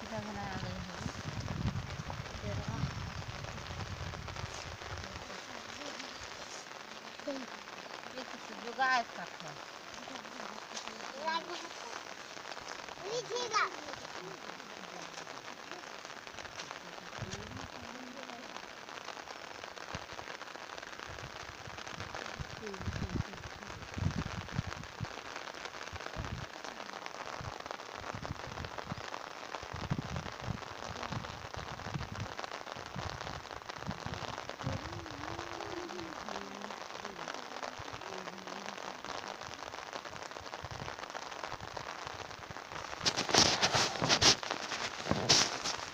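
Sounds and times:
rain falling on water: 0.0s - 45.9s.

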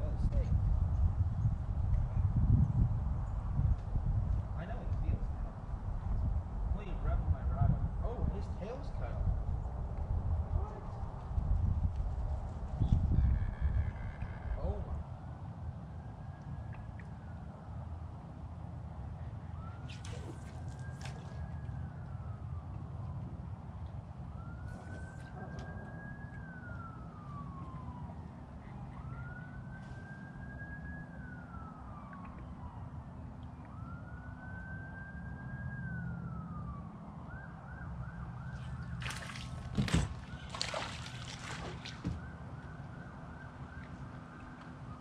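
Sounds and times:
emergency siren wailing: 12.9s - 45.0s.

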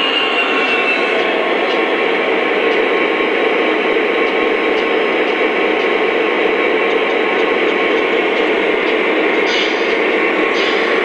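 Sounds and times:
model trains whirring on track: 0.0s - 11.0s
light ticks: 4.2s - 6.0s.

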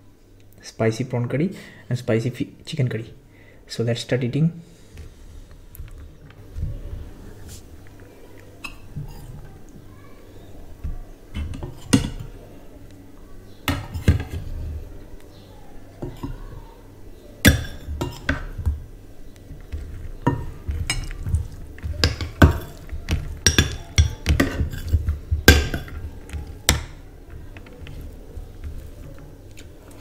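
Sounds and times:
metal spoons clinking on ceramic: 22.0s - 26.0s.

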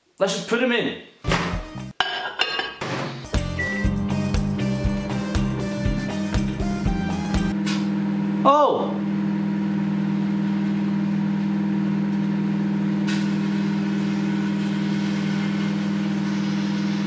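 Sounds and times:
microwave oven humming: 3.4s - 17.0s.

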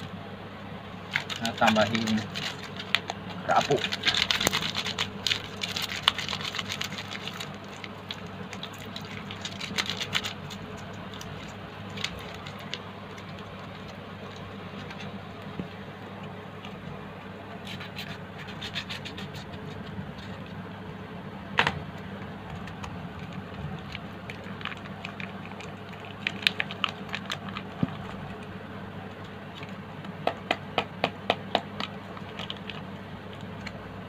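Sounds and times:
foil sachet crinkling: 1.0s - 15.2s, 22.6s - 29.8s, 31.7s - 33.9s.

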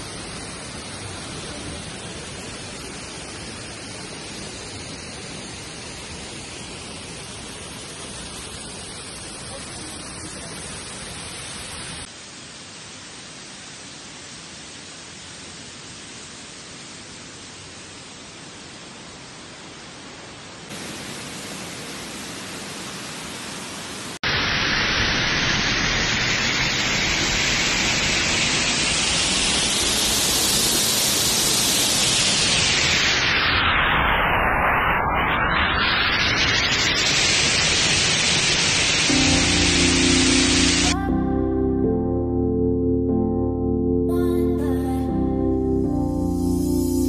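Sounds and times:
waterfall rushing: 20.7s - 34.1s, 35.8s - 41.2s.

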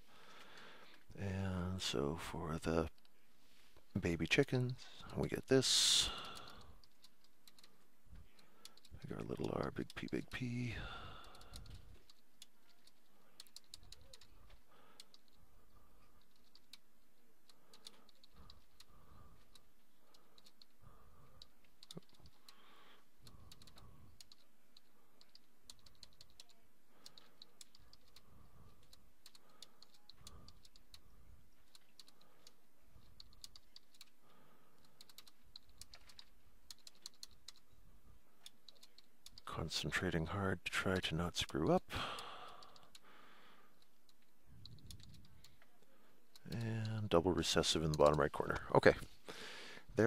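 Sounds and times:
typing on computer keyboard: 6.1s - 15.4s, 16.0s - 37.8s, 38.4s - 39.5s, 42.4s - 43.0s, 43.8s - 45.7s.

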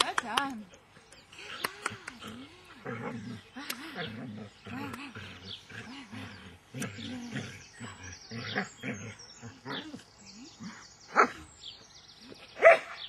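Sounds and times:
dog barking: 12.6s - 13.0s.

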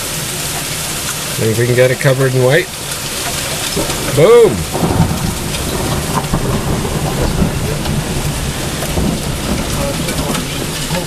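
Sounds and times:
hailstones ticking: 0.0s - 11.0s
heavy rain hissing: 0.0s - 11.0s
steady low rumble: 2.6s - 11.0s.

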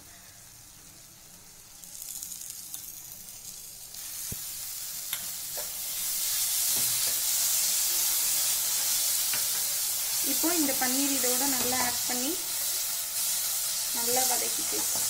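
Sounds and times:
food sizzling in a pan: 0.0s - 15.0s
spatula scraping and tapping pan: 9.3s - 9.8s, 11.4s - 12.0s, 14.7s - 15.0s.

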